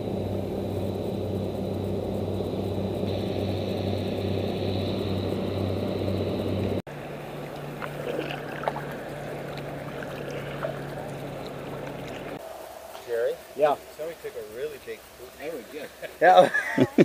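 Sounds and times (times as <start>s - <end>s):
boat diesel engines humming: 0.0s - 17.0s
canoe paddles splashing: 6.9s - 16.1s.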